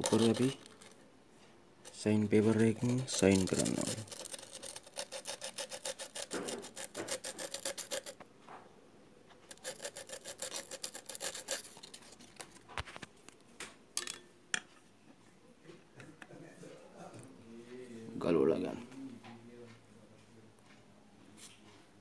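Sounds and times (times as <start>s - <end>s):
sandpaper scraping metal: 0.0s - 0.8s, 1.9s - 8.2s, 9.5s - 12.2s.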